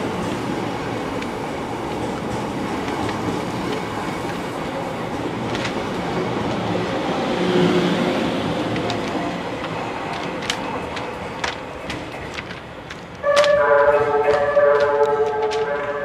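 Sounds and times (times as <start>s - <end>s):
wheels clicking over rail joints: 0.0s - 7.1s, 7.8s - 16.0s
train wheels rumbling on track: 0.0s - 16.0s.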